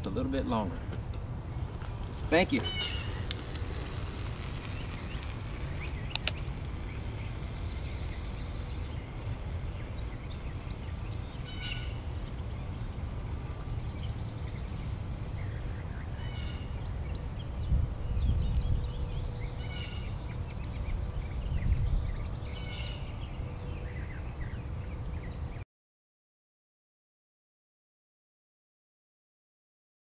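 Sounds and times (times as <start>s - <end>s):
low street rumble: 0.0s - 25.6s
short bird calls: 2.3s - 3.5s, 11.4s - 12.1s, 15.4s - 16.8s.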